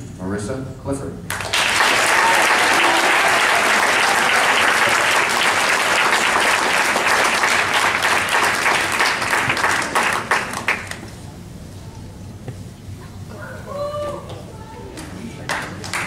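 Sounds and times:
audience applauding: 0:01.3 - 0:11.1, 0:15.4 - 0:16.0.

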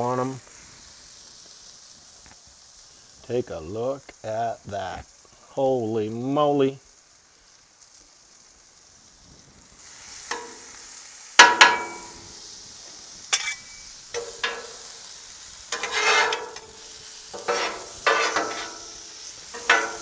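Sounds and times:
mushrooms sizzling on griddle: 0:00.0 - 0:20.0
spatula scraping griddle: 0:09.8 - 0:10.8, 0:11.4 - 0:20.0.

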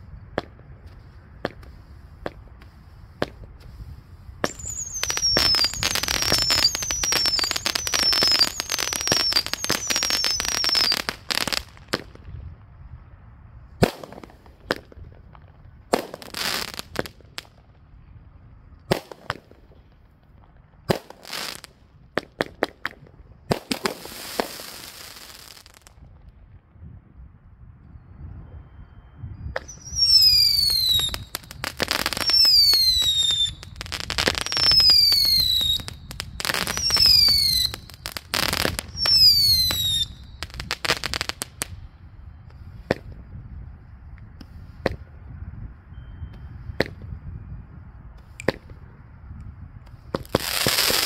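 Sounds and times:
firework crackling: 0:00.0 - 0:12.8, 0:13.8 - 0:17.7, 0:18.9 - 0:26.1, 0:29.6 - 0:41.8, 0:50.0 - 0:51.0
firework pops: 0:00.3 - 0:03.8, 0:13.8 - 0:17.6, 0:18.8 - 0:26.3, 0:29.5 - 0:41.8, 0:42.5 - 0:43.2, 0:44.1 - 0:45.1, 0:46.8 - 0:47.1, 0:48.2 - 0:48.8, 0:49.8 - 0:51.0
firework whistles falling in pitch: 0:04.4 - 0:12.3, 0:16.0 - 0:17.6, 0:20.9 - 0:26.0, 0:27.9 - 0:43.2, 0:45.9 - 0:47.2, 0:50.1 - 0:51.0.

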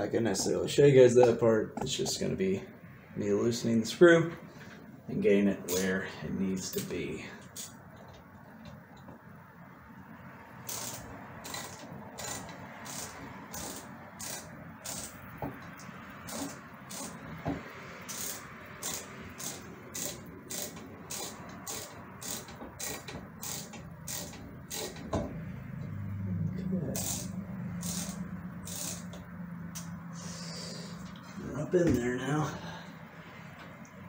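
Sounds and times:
screwdriver scraping on metal: 0:10.7 - 0:15.2, 0:16.3 - 0:17.2, 0:18.1 - 0:25.1, 0:27.0 - 0:29.2.

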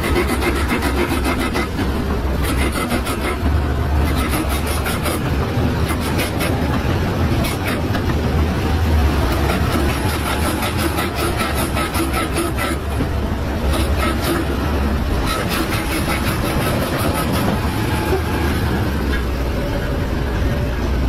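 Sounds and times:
diesel engine rumbling: 0:00.0 - 0:21.0.

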